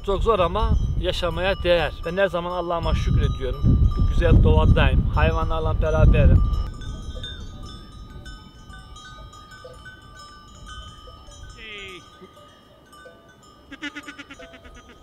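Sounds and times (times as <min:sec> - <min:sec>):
animal bells ringing: 0:00.0 - 0:15.0
sheep bleating: 0:13.7 - 0:15.0.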